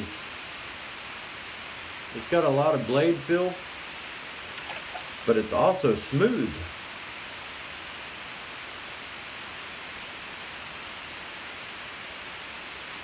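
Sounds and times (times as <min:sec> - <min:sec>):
steady background hiss: 0:00.0 - 0:13.0.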